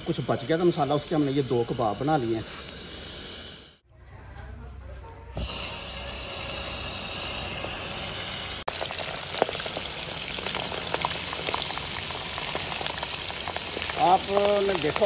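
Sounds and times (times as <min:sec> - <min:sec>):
gas burner hissing: 0:00.0 - 0:03.9, 0:05.3 - 0:15.0
chicken deep-frying in hot oil: 0:06.0 - 0:15.0.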